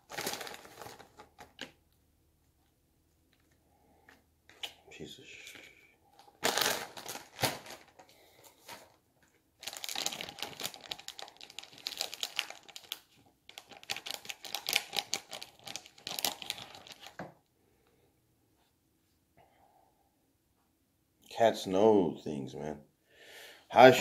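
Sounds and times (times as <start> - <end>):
plastic packaging crinkling: 0.0 - 1.8, 6.2 - 9.0, 9.6 - 17.2.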